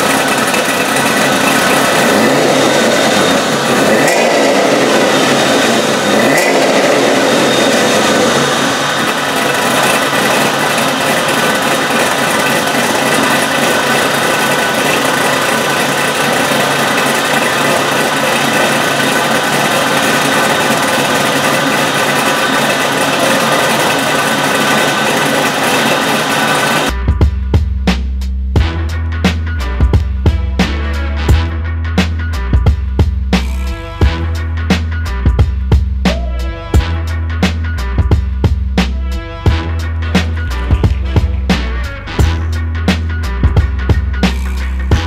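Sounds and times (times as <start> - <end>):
car engine idling: 0.0 - 28.1, 32.0 - 45.0.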